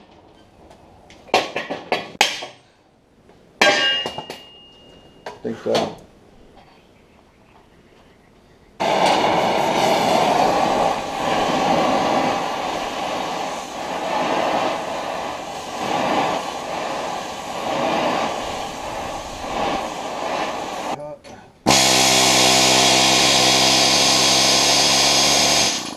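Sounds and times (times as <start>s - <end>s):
gas torch flame rushing: 8.8s - 21.0s, 21.7s - 25.9s.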